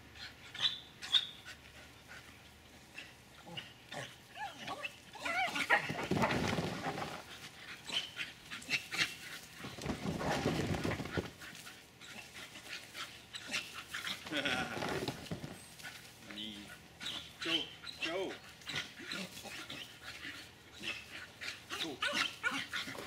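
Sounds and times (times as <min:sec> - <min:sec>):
dog barking and yelping: 0:03.5 - 0:06.1, 0:17.0 - 0:23.0.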